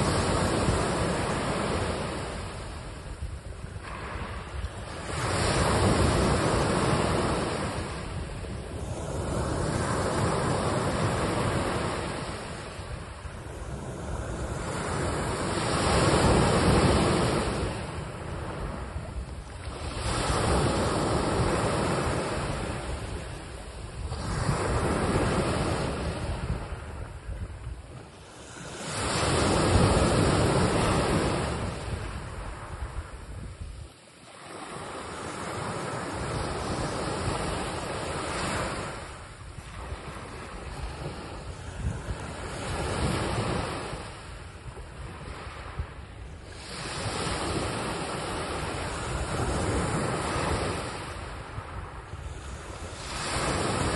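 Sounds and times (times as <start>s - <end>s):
small waves breaking on sand: 0.0s - 53.9s.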